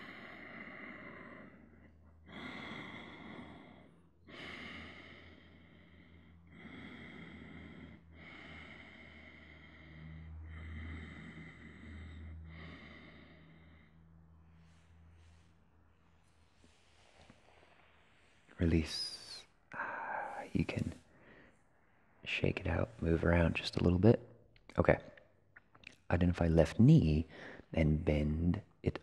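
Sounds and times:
man breathing slowly: 0.0s - 23.4s, 27.2s - 27.7s.

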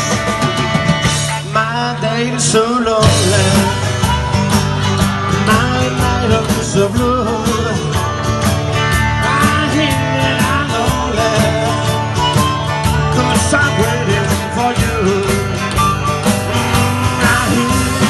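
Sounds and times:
drums keeping a steady beat: 0.0s - 18.0s
electric guitar: 0.0s - 18.0s
strummed acoustic guitar: 0.0s - 18.0s
upright bass: 0.0s - 18.0s
amplified harmonica: 8.0s - 18.0s.

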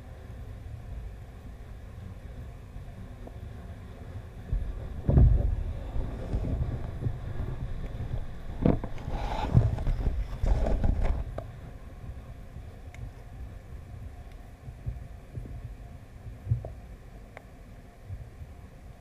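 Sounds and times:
muffled underwater rumble: 0.0s - 19.0s
dull knocks and scrapes: 8.6s - 11.4s.

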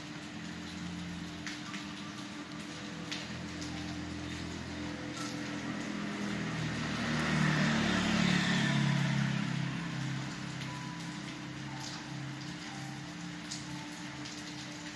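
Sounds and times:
steady rain: 0.0s - 14.9s
vehicle passing on wet road: 0.0s - 14.9s.

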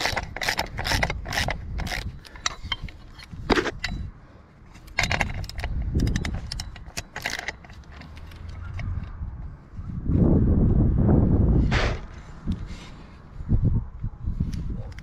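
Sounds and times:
metallic clinks of bolts and washers: 0.0s - 4.1s, 4.7s - 9.2s.

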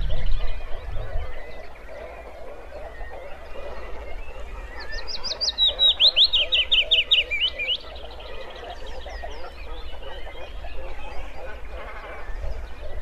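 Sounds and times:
bird singing trill: 0.0s - 13.0s.

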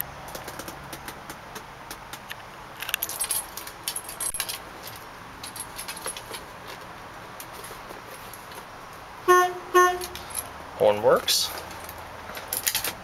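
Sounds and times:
keys jangling: 2.8s - 6.4s, 10.0s - 10.5s.

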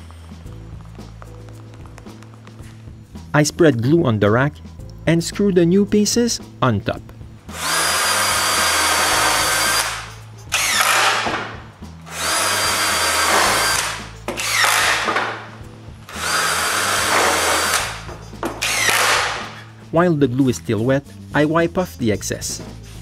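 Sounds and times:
cordless drill driving screws: 7.5s - 11.4s, 12.1s - 15.3s, 16.1s - 19.6s.

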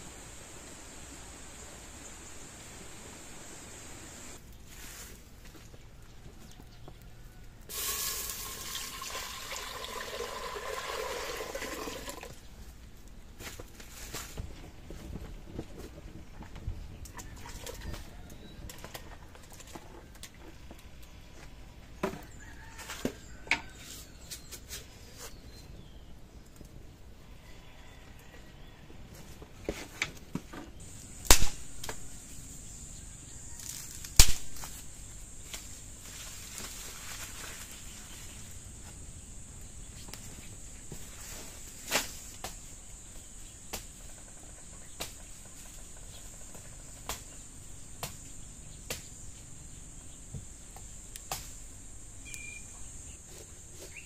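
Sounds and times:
water pouring into pot: 7.7s - 12.4s
blade chopping wood cracks: 31.2s - 32.0s, 34.1s - 34.8s.

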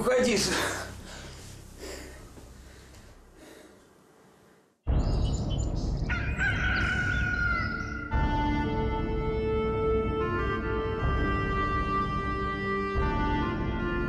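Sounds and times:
small birds chirping: 4.9s - 8.1s
rooster crowing: 6.1s - 8.1s.

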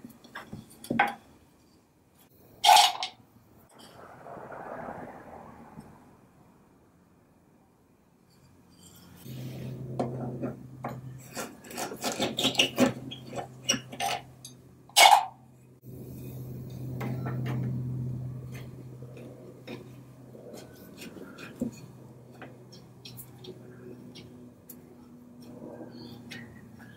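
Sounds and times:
steel tool scraping wood: 8.7s - 14.3s, 19.7s - 22.0s.

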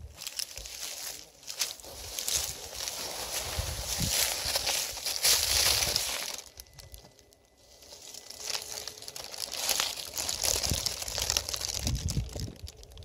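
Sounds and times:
leaf litter rustling and crackling: 0.0s - 13.0s
low rumbling thumps: 10.2s - 12.7s.

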